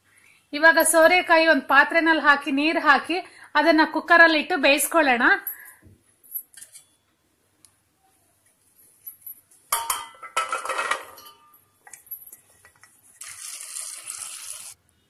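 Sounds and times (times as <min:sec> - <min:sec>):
metal pot clattering and ringing: 0:09.7 - 0:11.6
water pouring into a pot: 0:13.1 - 0:14.8.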